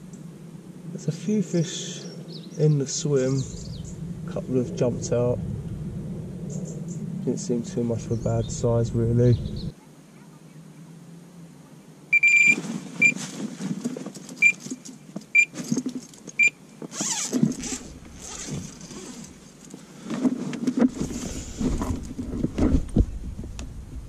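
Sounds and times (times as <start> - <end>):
low rumble: 0.0 - 9.7, 17.5 - 19.7, 20.9 - 24.0
bite alarm beeps: 12.1 - 13.2, 16.4 - 16.6
rustling and knocking: 12.6 - 23.7.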